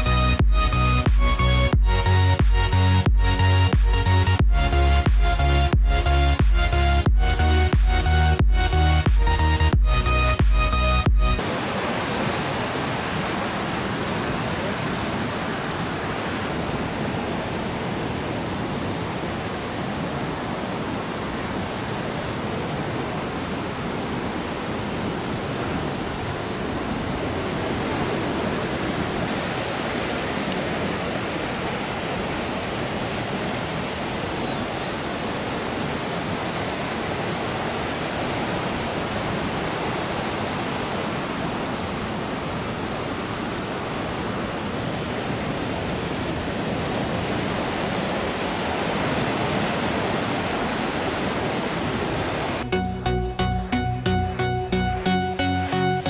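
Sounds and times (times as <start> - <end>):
ocean surf breaking: 11.4 - 52.7.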